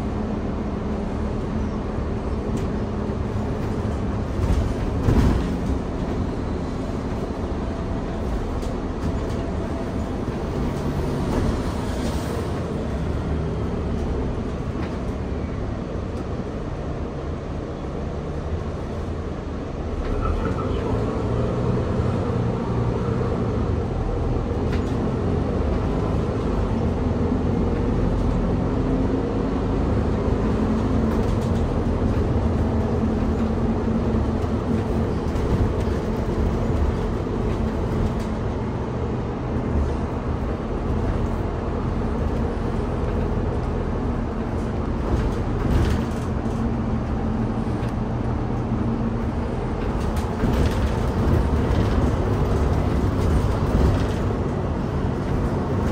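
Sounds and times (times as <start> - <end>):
bus diesel engine drone: 0.0 - 55.9
tyre and road noise: 0.0 - 55.9.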